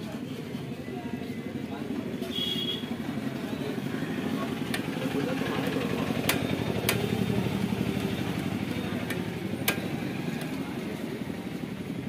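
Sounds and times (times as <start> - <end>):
motorcycle engine idling: 3.0 - 12.0.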